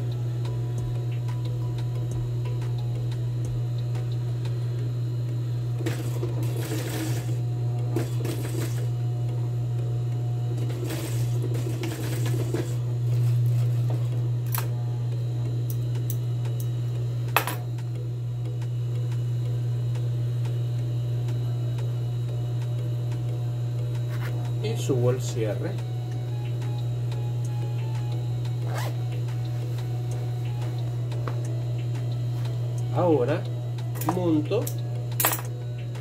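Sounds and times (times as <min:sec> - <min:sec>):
sewing machine motor humming: 0:05.7 - 0:09.9, 0:10.6 - 0:14.5.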